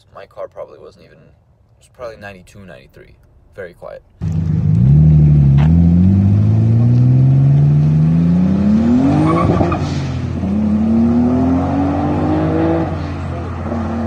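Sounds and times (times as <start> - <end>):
car engine accelerating hard: 4.2 - 14.0.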